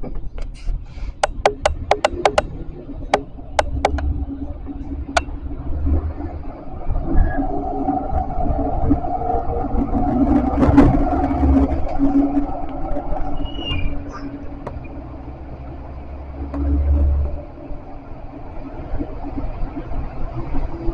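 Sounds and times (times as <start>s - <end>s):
tram sharp clicks: 0.0s - 6.0s, 9.8s - 15.6s
tram low rumble: 0.0s - 20.9s.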